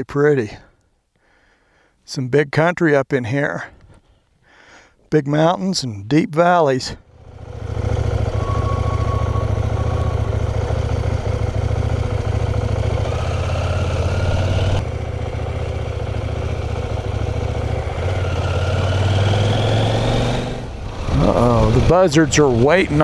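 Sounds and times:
motorcycle engine running: 7.1 - 23.0.

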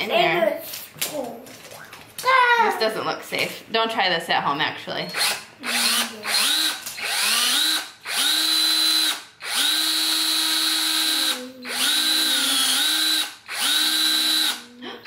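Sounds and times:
power drill boring into wood: 5.2 - 14.6.

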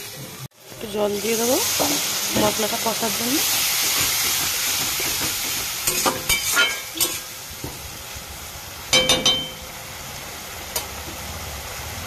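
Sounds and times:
paste sizzling in hot oil: 0.0 - 12.0
metal spatula scraping pan: 3.8 - 7.3.

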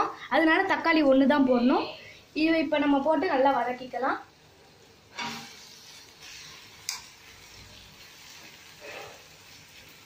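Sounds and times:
spatula stirring vegetables in pan: 4.7 - 10.0.

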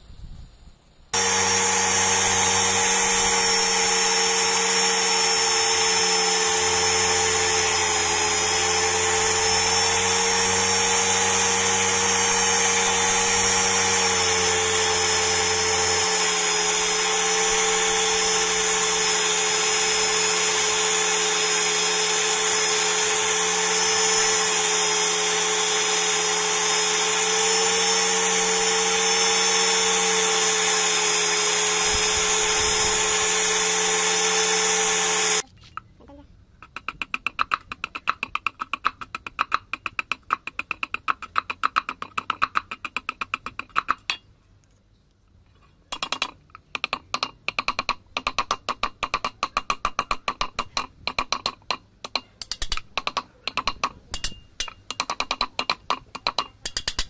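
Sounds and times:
polishing wheel motor whine: 1.2 - 35.4.

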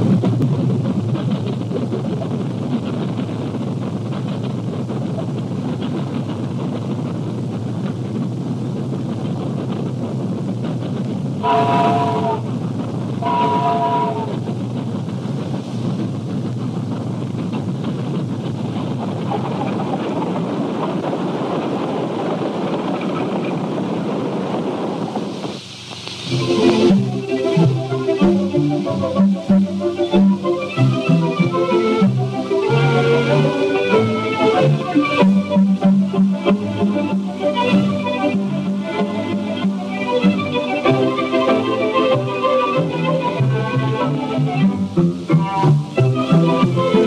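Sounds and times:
vehicle engine rumble: 0.0 - 32.6
film soundtrack rushing noise: 0.0 - 47.0.

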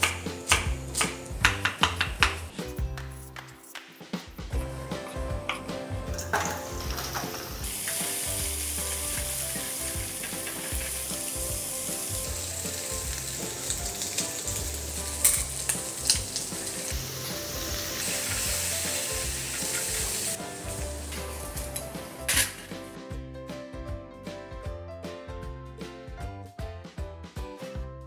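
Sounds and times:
spatula knocking on pan: 1.4 - 2.4
food sizzling in a wok: 4.6 - 23.0.

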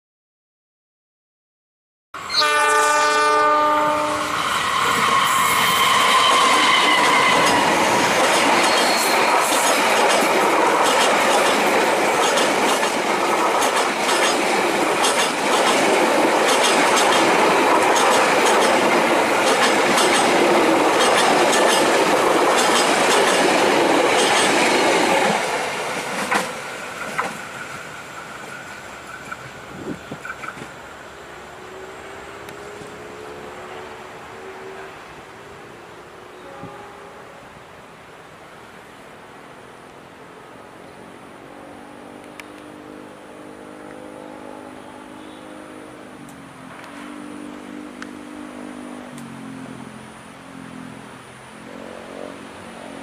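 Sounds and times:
locomotive horn chord: 2.2 - 5.4, 36.3 - 37.5, 43.3 - 46.2
train wheels clattering on rails: 4.6 - 30.8.

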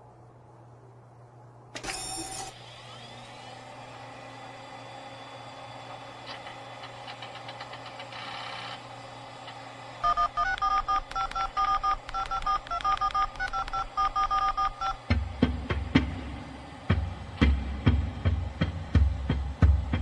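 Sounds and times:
electronic hum: 5.8 - 15.2
touch-tone dialing beeps: 10.0 - 15.0.

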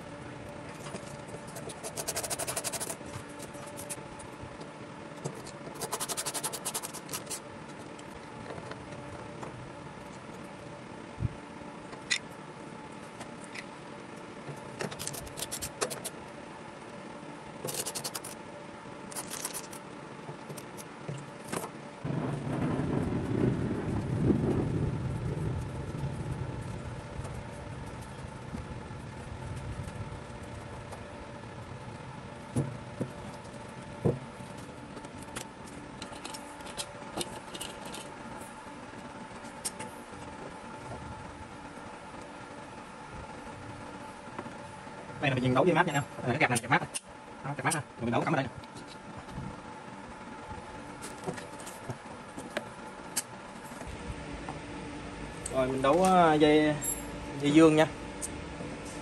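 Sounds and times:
screwdriver clicking and scraping metal: 1.5 - 3.0, 5.3 - 7.4, 14.9 - 16.1, 17.6 - 18.4, 19.1 - 19.8
low rumble: 22.0 - 30.9.

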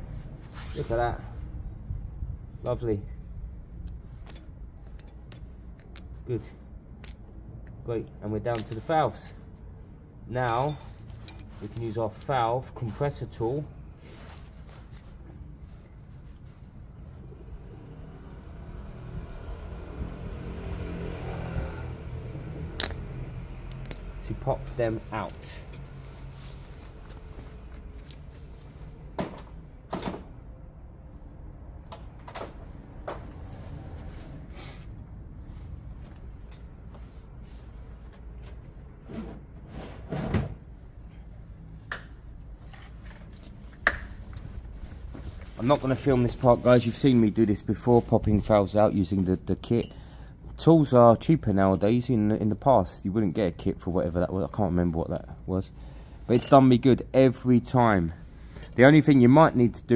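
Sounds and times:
vehicle engine rumbling: 13.8 - 39.1.

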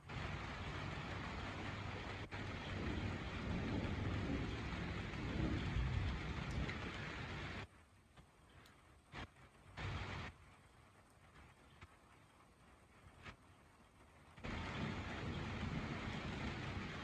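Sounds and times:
low rumble: 0.0 - 7.6
heavy rain hissing: 0.0 - 17.0.

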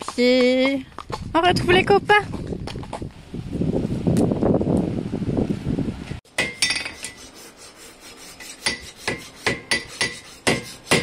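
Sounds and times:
steel tools clinking on horseshoe: 6.4 - 7.2.

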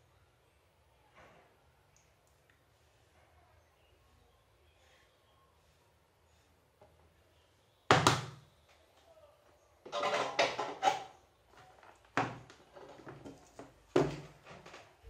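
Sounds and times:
small tools rustling and knocking: 9.8 - 15.0.

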